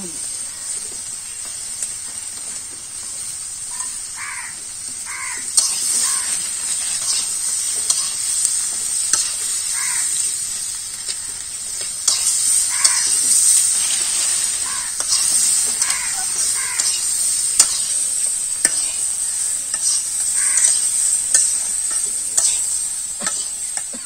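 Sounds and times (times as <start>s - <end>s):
food sizzling in a pan: 0.0s - 24.0s
spatula scraping and knocking pan: 5.0s - 10.2s, 11.0s - 19.0s, 19.7s - 24.0s.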